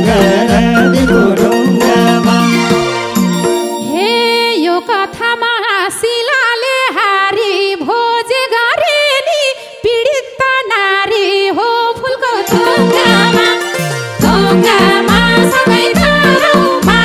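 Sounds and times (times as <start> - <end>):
held accompaniment note: 0.0 - 5.1
woman singing folk verse: 3.9 - 17.0.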